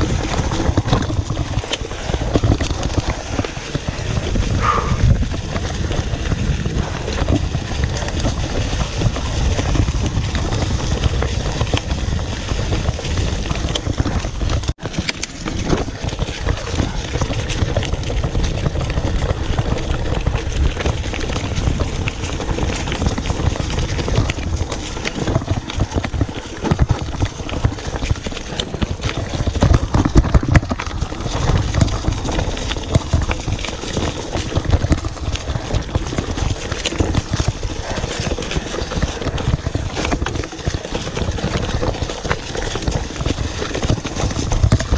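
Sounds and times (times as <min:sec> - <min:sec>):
bike rattling over dirt trail: 0:00.0 - 0:44.9
heavy low rumble: 0:03.9 - 0:12.3.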